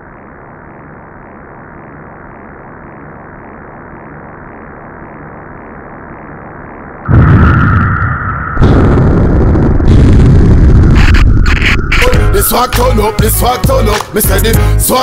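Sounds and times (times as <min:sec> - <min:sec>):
dark synthesized drone: 0:00.0 - 0:15.0
loud hit with high ringing tone: 0:07.1 - 0:12.7.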